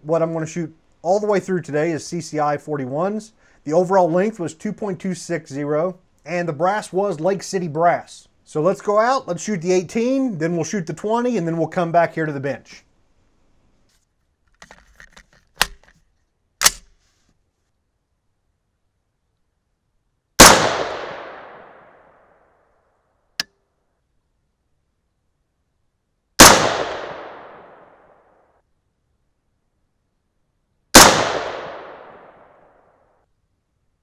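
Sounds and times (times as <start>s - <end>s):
gunshots with echo: 20.4s - 21.9s, 26.4s - 27.9s, 31.0s - 32.5s.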